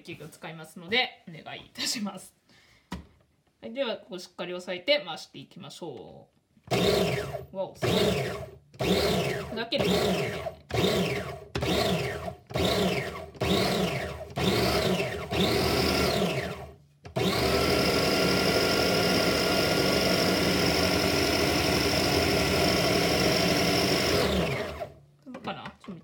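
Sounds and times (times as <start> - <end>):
food processor motor running: 6.7 - 25.0.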